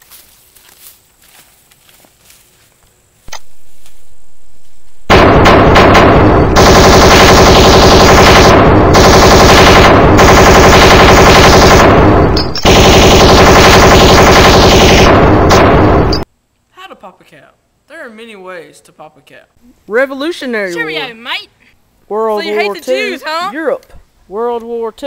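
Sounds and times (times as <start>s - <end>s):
machine-gun fire: 5.0s - 16.2s.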